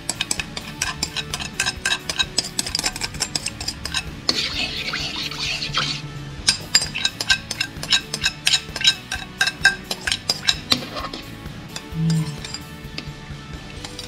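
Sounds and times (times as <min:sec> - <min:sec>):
metal spoon scraping china plate: 0:00.0 - 0:12.7
sauce hissing in wok: 0:04.3 - 0:06.1.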